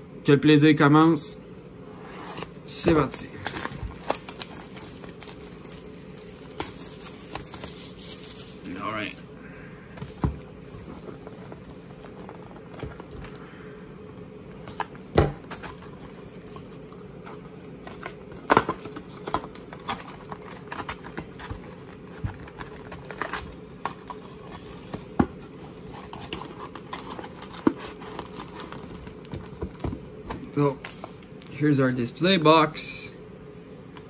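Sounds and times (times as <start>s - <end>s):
faint steady hum: 0.0s - 34.0s
wrapping crinkling and tearing: 2.4s - 9.2s, 15.6s - 24.9s, 25.6s - 29.8s.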